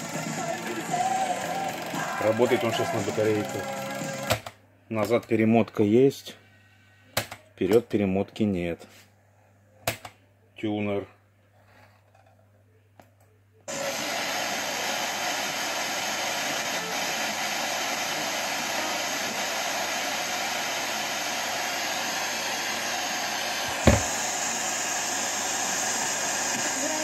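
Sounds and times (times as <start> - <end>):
thump: 23.8 - 24.1.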